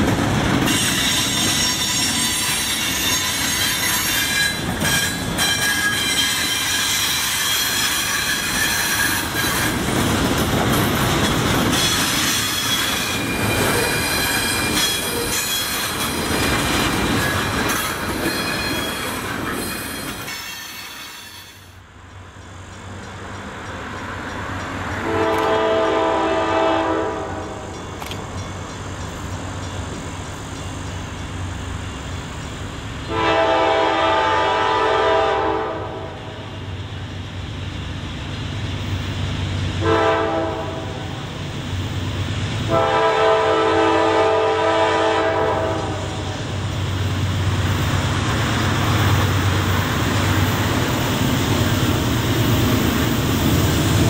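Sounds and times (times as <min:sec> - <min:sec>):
train rumble: 0:00.0 - 0:54.0
locomotive air horn: 0:25.0 - 0:27.6, 0:33.1 - 0:36.5, 0:39.8 - 0:41.2, 0:42.7 - 0:46.4.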